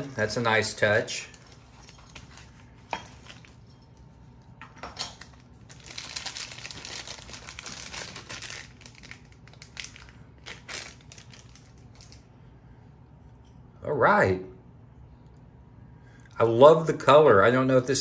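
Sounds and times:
plastic bag crinkling: 0:05.2 - 0:12.3.

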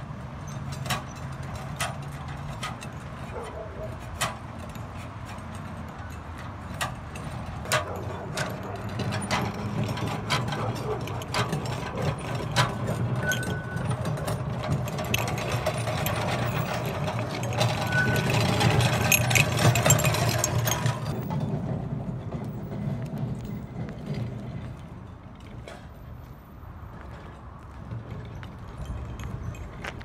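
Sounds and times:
irregular clicks and rattles: 0:00.4 - 0:21.5
sealant pot rolling over asphalt: 0:00.4 - 0:30.0.

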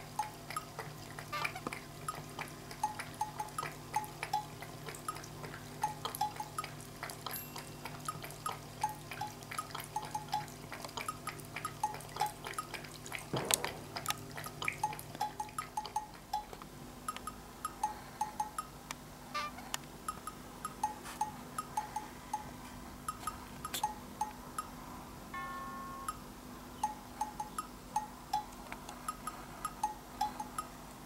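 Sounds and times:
cat lapping water: 0:00.0 - 0:16.6.

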